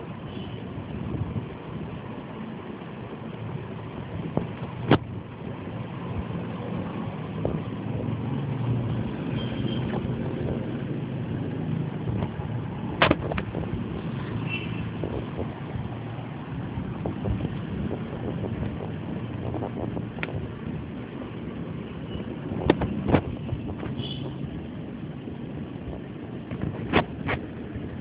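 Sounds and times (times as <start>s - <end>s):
low rumbling background noise: 9.9s - 28.0s.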